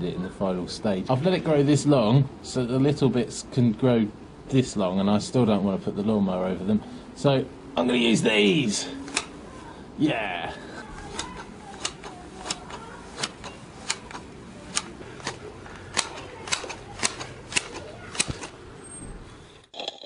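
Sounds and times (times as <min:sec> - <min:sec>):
hand shears snipping grass: 0:11.0 - 0:18.5.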